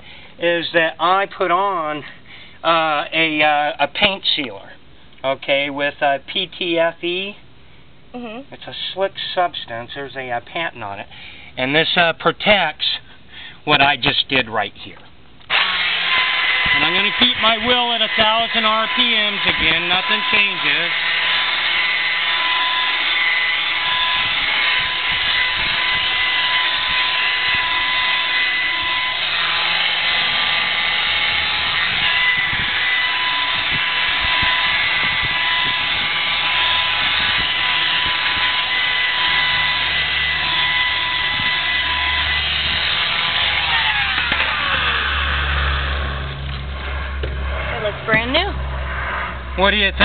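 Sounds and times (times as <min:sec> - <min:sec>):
rotary polisher motor whine: 0:15.5 - 0:50.0.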